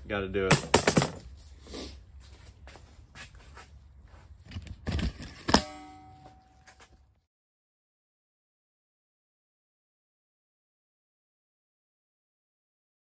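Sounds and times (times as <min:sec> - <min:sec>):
low steady hum: 0:02.2 - 0:07.2
sharp metallic clink: 0:05.5 - 0:06.8.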